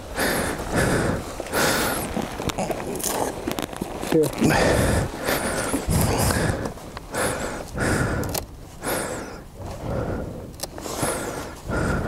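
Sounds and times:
person breathing hard: 0.1 - 2.2, 4.4 - 12.0.

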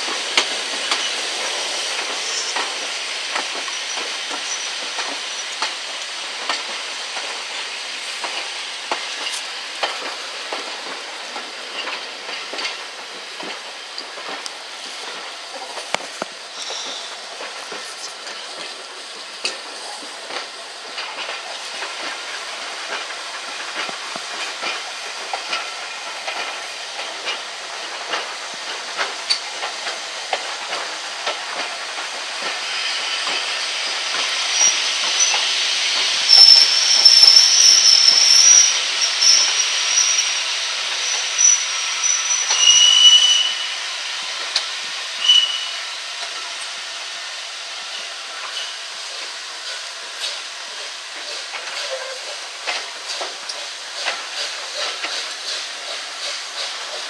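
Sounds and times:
wheels clicking over rail joints: 0.0 - 41.7, 48.0 - 57.0
metallic wheel squeals: 36.3 - 40.4, 41.1 - 43.7, 45.2 - 45.8.

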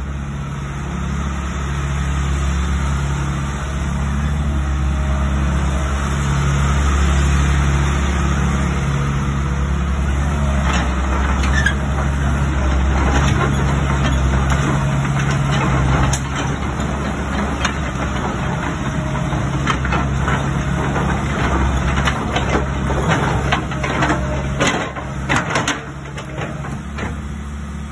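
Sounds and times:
excavator diesel engine droning: 0.0 - 27.9.

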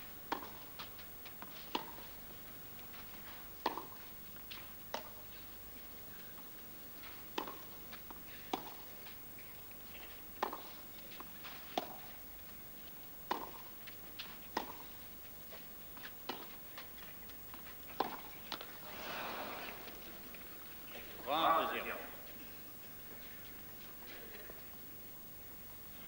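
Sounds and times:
tennis ball bouncing on clay: 0.3 - 2.1, 3.6 - 5.2, 7.0 - 12.5, 13.2 - 18.8
tennis ball hit by racket: 1.7 - 2.0, 3.6 - 4.0, 7.3 - 7.7, 8.5 - 8.8, 10.4 - 10.7, 11.5 - 12.1, 13.3 - 14.8, 17.5 - 20.4
crowd noise: 18.7 - 24.8.

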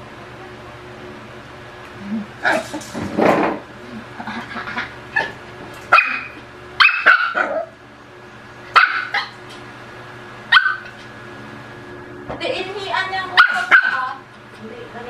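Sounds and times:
puppy barking: 5.2 - 7.8, 8.7 - 9.4, 10.5 - 11.0, 13.3 - 14.2.

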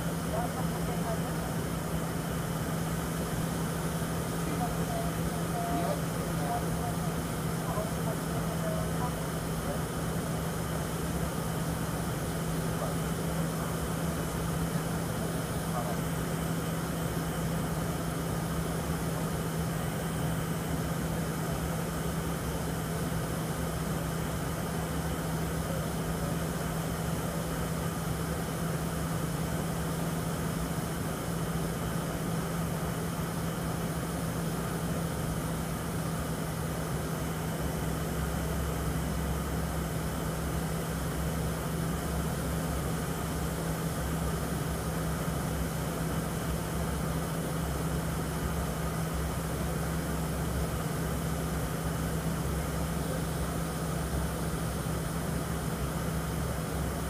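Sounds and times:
airliner engine drone: 0.0 - 57.0.

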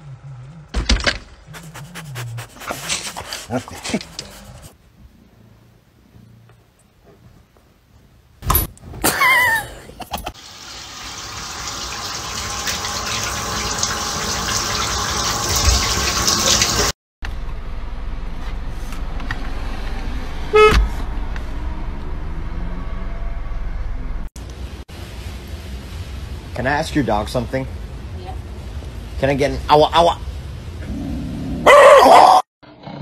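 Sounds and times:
car horn beep: 20.5 - 20.8.

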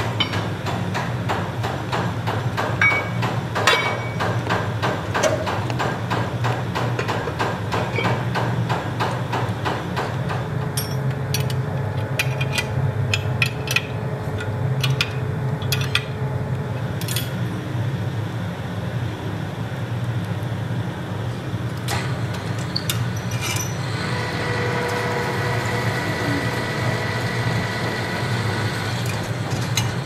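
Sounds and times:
pillar drill humming: 23.8 - 30.0.

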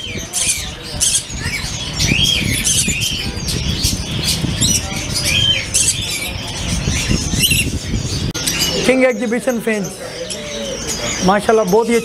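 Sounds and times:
small birds chirping and squawking: 0.0 - 12.0.

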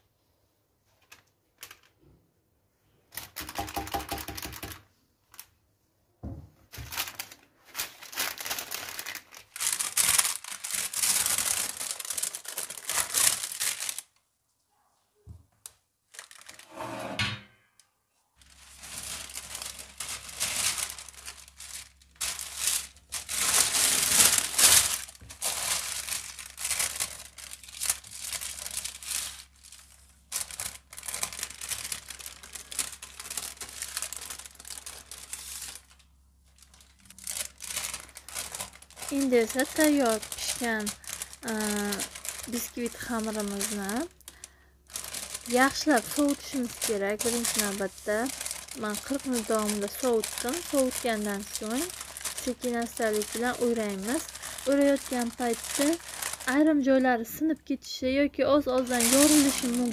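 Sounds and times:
parchment and cling film crinkling: 0.8 - 2.1, 2.9 - 5.6, 6.6 - 14.3, 15.6 - 16.7, 18.4 - 59.9
brief scraping: 16.7 - 17.2.

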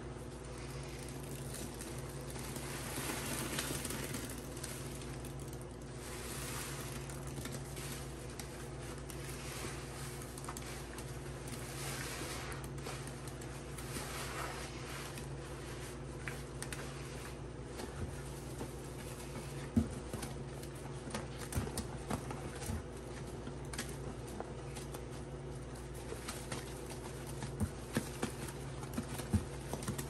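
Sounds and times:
soapy sponges squelching: 0.4 - 20.1.

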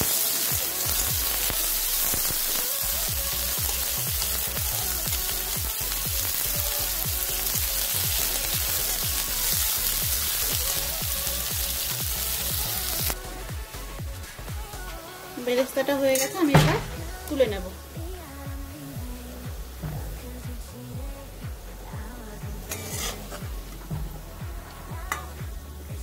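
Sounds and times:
onions sizzling in oil: 0.0 - 25.9
background music: 0.0 - 26.0
metal spatula stirring in wok: 22.6 - 25.4.

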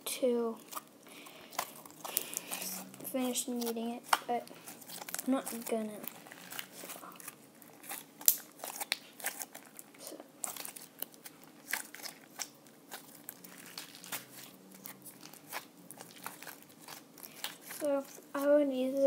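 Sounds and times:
slime squelching sticky clicks: 7.8 - 9.6.

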